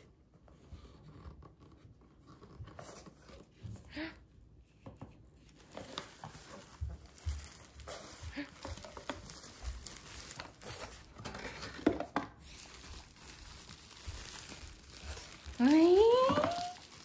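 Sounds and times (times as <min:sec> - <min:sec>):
plastic wrapping crinkling: 0:05.4 - 0:17.0.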